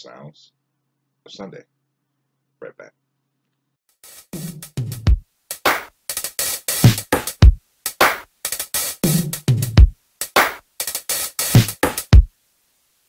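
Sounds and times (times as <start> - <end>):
kick drum thumps: 5.0 - 5.2, 6.8 - 7.6, 9.0 - 10.5, 11.6 - 12.3
snare hits: 5.5 - 9.3, 10.2 - 12.1.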